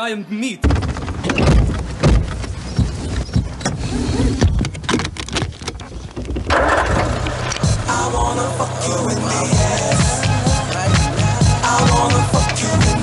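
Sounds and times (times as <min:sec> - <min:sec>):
car clunks and knocks: 0:00.6 - 0:07.6
car engine and road rumble: 0:01.5 - 0:13.0.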